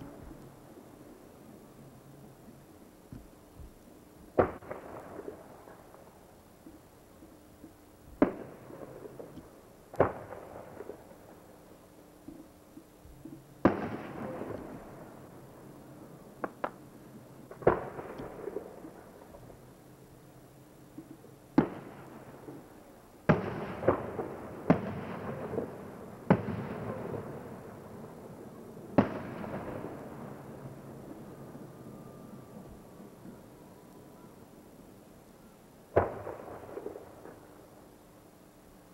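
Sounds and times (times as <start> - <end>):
fireworks bangs: 3.1 - 6.8, 8.1 - 11.4, 13.6 - 15.3, 23.3 - 28.2, 28.9 - 33.4, 35.9 - 37.8.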